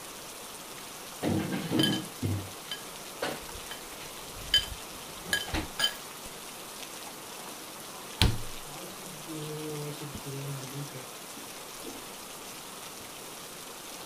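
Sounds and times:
steady rain falling: 0:00.0 - 0:14.0
metallic clinks of kitchen utensils: 0:01.7 - 0:02.9, 0:04.5 - 0:06.0
sharp knock: 0:08.2 - 0:08.5.

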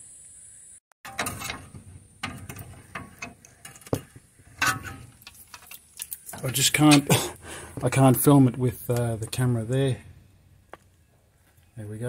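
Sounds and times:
hand tools clinking on metal: 0:01.1 - 0:07.9.

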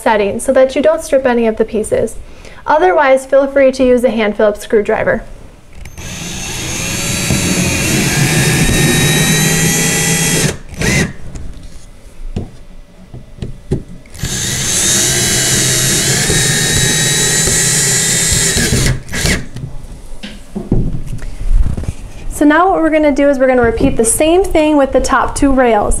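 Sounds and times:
cordless drill driving screws: 0:05.8 - 0:11.2, 0:14.1 - 0:19.5.

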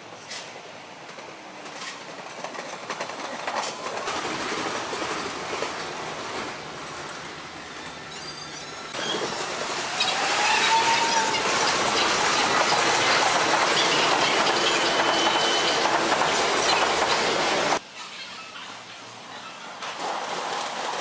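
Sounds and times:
train wheels rushing over rails: 0:00.0 - 0:08.1, 0:08.9 - 0:17.8, 0:19.8 - 0:21.0
high wheel squeals: 0:07.6 - 0:16.0.

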